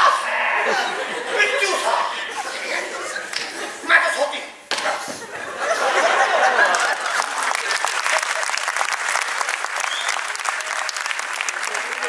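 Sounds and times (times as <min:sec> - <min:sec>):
voices: 0:00.0 - 0:05.1
audience applauding: 0:06.4 - 0:12.0.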